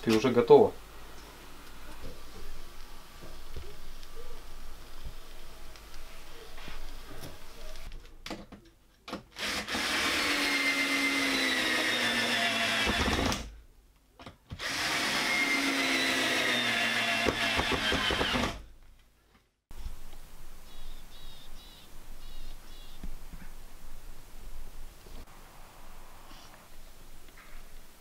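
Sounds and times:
cordless drill whining into wood: 0:09.4 - 0:13.4, 0:14.6 - 0:18.6.

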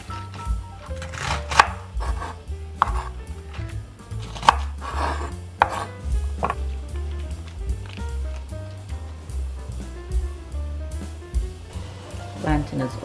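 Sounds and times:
soft cutting sounds: 0:00.0 - 0:08.9
knife knocking on wooden board: 0:04.3 - 0:07.2.

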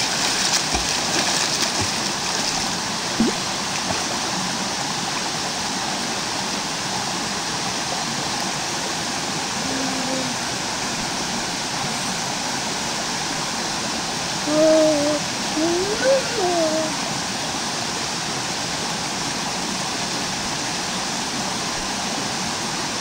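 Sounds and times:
stream rushing over boulders: 0:00.0 - 0:23.0
person calling out: 0:09.6 - 0:10.4, 0:14.5 - 0:17.0.

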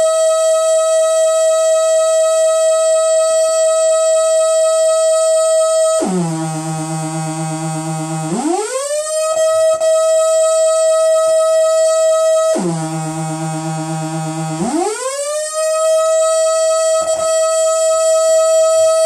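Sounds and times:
buzzy synthesizer tone: 0:05.7 - 0:19.0.

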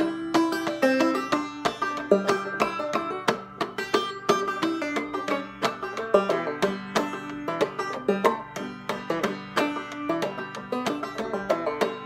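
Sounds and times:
banjo playing: 0:00.0 - 0:12.0.

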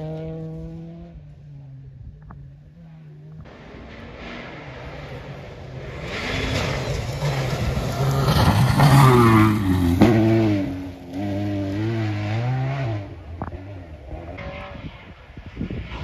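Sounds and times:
rally car engine revving: 0:00.0 - 0:16.0
tyres on loose gravel: 0:05.8 - 0:10.1.

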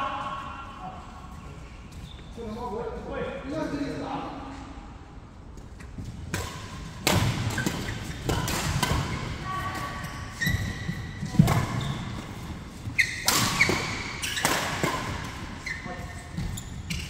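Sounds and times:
racket hitting shuttlecock: 0:06.3 - 0:10.7, 0:13.0 - 0:15.6
sneakers squeaking on court: 0:07.2 - 0:17.0.

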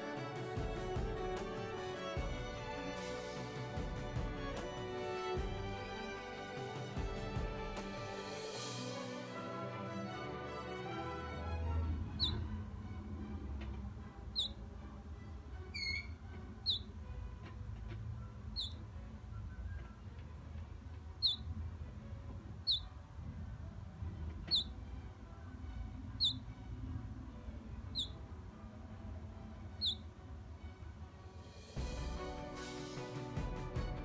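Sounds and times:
low steady rumble: 0:00.6 - 0:08.2, 0:11.2 - 0:31.2
bird chicks peeping: 0:12.2 - 0:12.5, 0:14.3 - 0:14.6, 0:15.8 - 0:16.9, 0:18.5 - 0:18.8, 0:21.2 - 0:21.5, 0:22.6 - 0:22.9, 0:24.5 - 0:24.8, 0:26.2 - 0:26.5, 0:27.9 - 0:28.2, 0:29.8 - 0:30.1
lower wavering bird call: 0:12.2 - 0:12.5, 0:14.3 - 0:14.6, 0:15.8 - 0:16.9, 0:18.5 - 0:18.8, 0:21.2 - 0:21.5, 0:22.6 - 0:22.9, 0:24.5 - 0:24.7, 0:26.1 - 0:26.5, 0:27.9 - 0:28.2, 0:29.8 - 0:30.1.

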